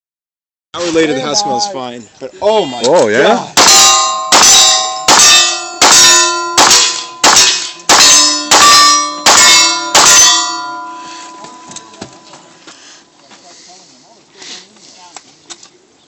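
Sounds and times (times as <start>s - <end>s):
rifle shots: 3.6s - 10.6s
steel target ringing: 3.6s - 12.6s.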